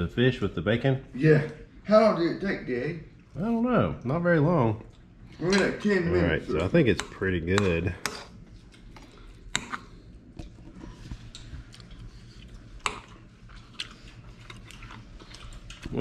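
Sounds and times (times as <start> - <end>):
low steady hum: 0.0 - 16.0
person chewing: 8.1 - 16.0.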